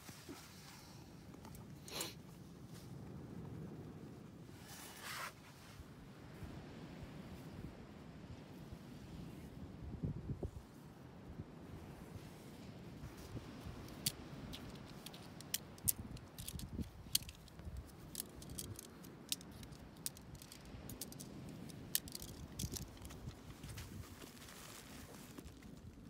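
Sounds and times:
low wind rumble: 0.6s - 26.0s
tent pole sections clicking: 13.6s - 25.8s.

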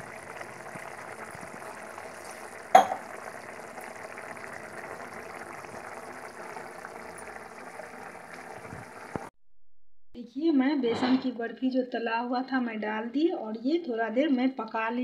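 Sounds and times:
gravy simmering in a pan: 0.0s - 9.3s.

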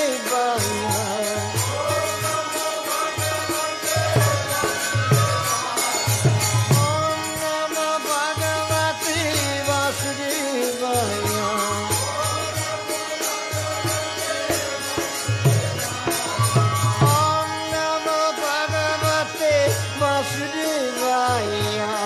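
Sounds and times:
light percussion: 0.0s - 22.0s
mantra-style chant singing: 0.0s - 22.0s.

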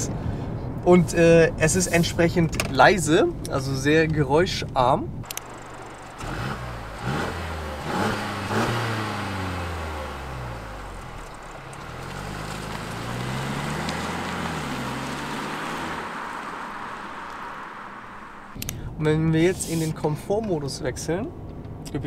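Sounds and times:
car engine accelerating: 5.2s - 18.8s.

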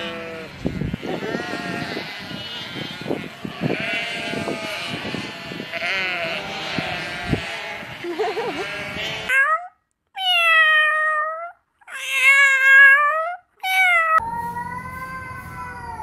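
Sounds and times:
sheep bleating: 0.0s - 9.7s.

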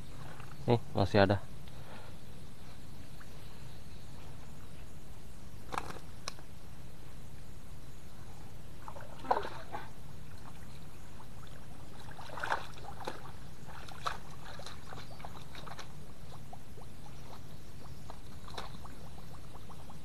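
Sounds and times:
low background noise: 0.0s - 20.0s
muddy water sloshing and splashing: 8.8s - 20.0s.

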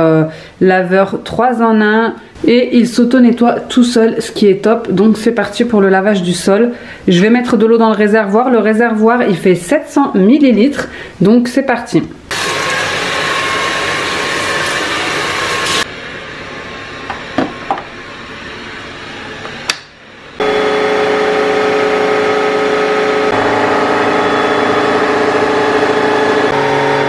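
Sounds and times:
vacuum motor running: 12.3s - 19.8s, 20.4s - 27.0s.

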